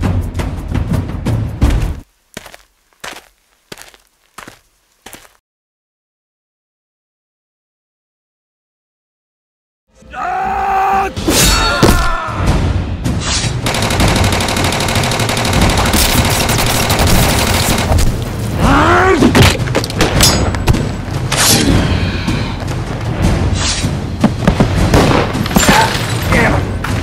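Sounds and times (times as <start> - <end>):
rapid gunfire: 13.6 - 18.2
groan: 18.6 - 19.3
heavy thuds and blows: 22.5 - 25.8.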